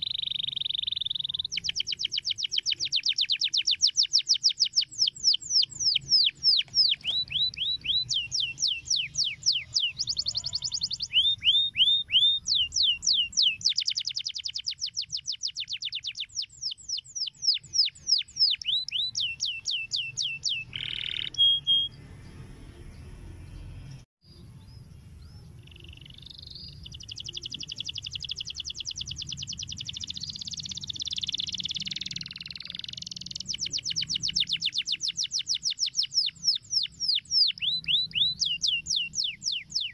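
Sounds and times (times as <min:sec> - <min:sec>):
canary singing: 0:00.0 - 0:39.9.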